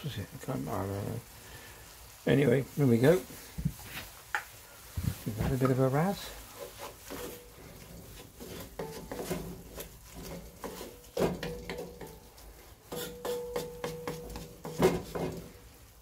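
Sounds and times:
wooden spatula scraping a pot: 2.0 - 16.0
spatula knocking against pot: 12.9 - 15.4.

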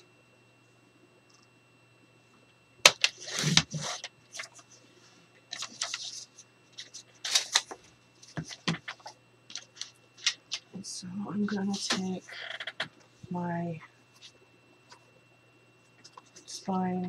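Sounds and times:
envelope rustling: 5.5 - 10.7, 11.6 - 12.2.

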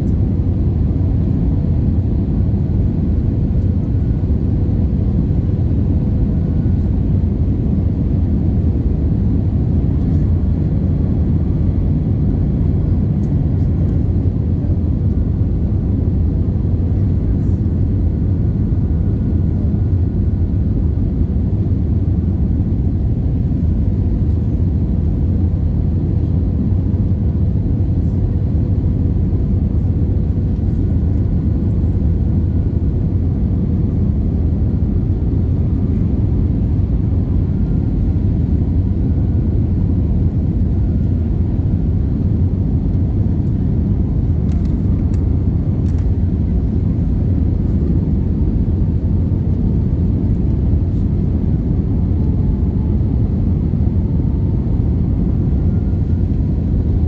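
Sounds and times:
aircraft cabin rumble: 0.0 - 57.0.

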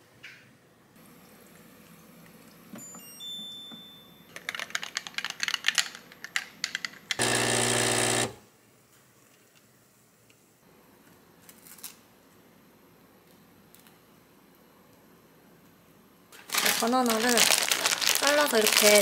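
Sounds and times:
espresso machine pump buzzing: 7.2 - 8.4
ice crackling in a glass: 16.4 - 19.0.

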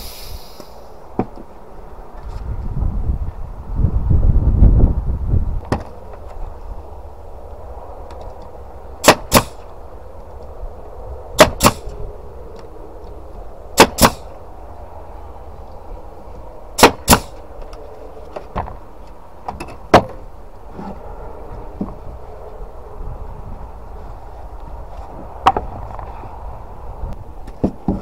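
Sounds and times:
nail gun firing into wood: 9.0 - 9.6, 11.4 - 11.9, 13.8 - 14.3, 16.8 - 17.4.

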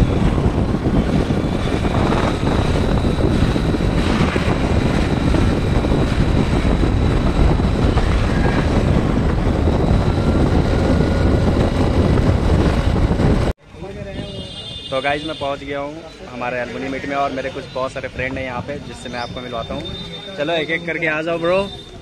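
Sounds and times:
wind rushing: 0.0 - 13.6
road noise: 0.0 - 22.0.

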